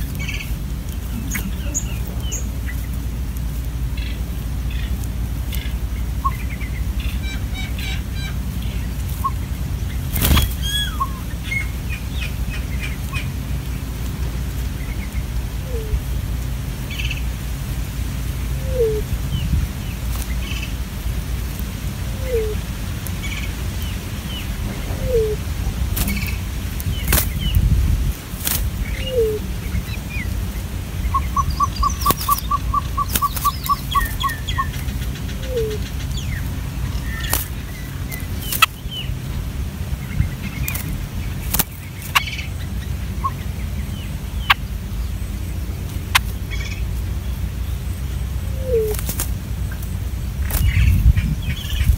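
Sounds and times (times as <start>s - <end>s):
birds calling: 0.0s - 51.9s
steady low rumble: 0.0s - 51.9s
high chirps: 4.0s - 13.3s, 18.6s - 19.6s, 22.1s - 22.6s, 28.8s - 30.3s, 31.0s - 39.1s.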